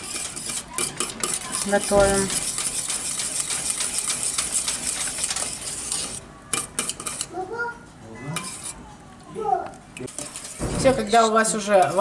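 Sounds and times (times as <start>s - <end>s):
whisk scraping metal pot: 0.0s - 7.3s, 8.3s - 8.9s, 10.1s - 12.0s.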